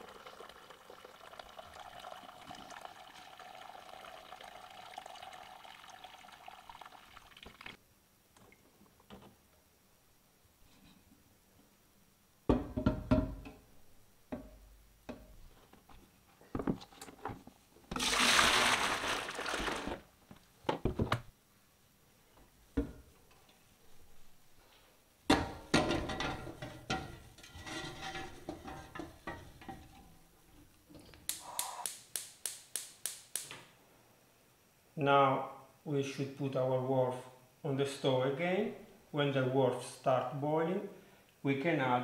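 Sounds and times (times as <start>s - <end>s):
liquid pouring: 0.0s - 7.8s, 17.9s - 20.1s
pots clattering in a steel sink: 25.3s - 30.2s.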